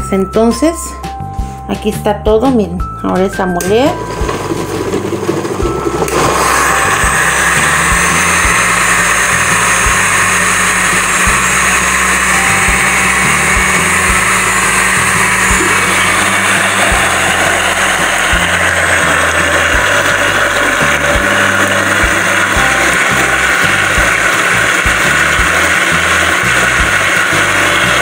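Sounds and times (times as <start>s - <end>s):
blender motor whirring: 3.9s - 28.0s.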